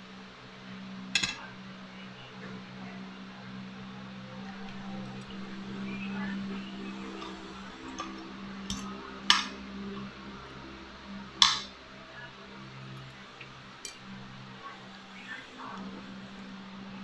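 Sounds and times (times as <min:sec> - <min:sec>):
low steady hum: 0:00.0 - 0:17.0
cutlery clinking on a plate: 0:01.2 - 0:01.4.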